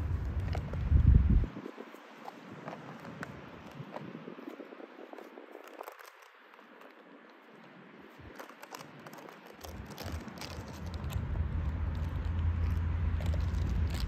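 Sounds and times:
dog chewing hard object: 0.1s - 1.3s, 8.2s - 14.0s
low rumble: 10.1s - 14.0s.

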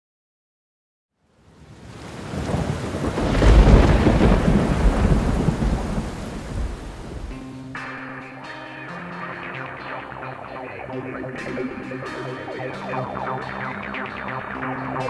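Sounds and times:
rain hiss: 1.4s - 7.4s
thunder rumble: 1.9s - 7.4s
electric guitar music: 3.4s - 15.0s.

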